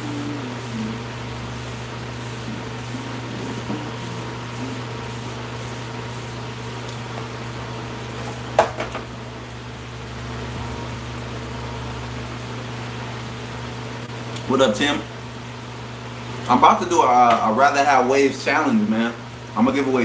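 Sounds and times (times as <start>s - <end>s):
fan humming: 0.0s - 20.0s.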